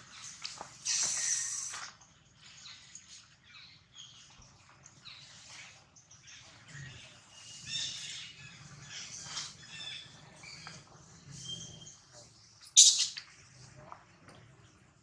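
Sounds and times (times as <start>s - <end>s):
animal squeaks and chirps: 12.7s - 13.2s.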